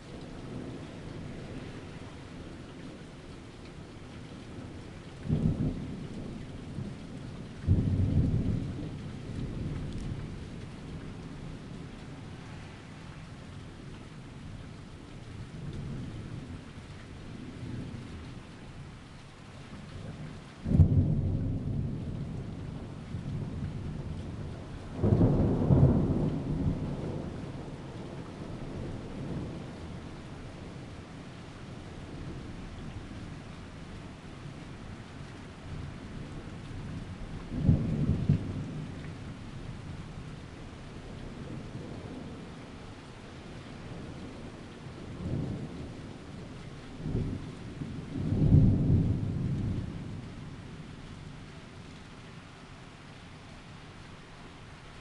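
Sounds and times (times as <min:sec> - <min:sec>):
thunder clap and rumble: 0:03.7 - 0:13.1, 0:19.9 - 0:31.4, 0:35.3 - 0:42.5, 0:43.8 - 0:51.2.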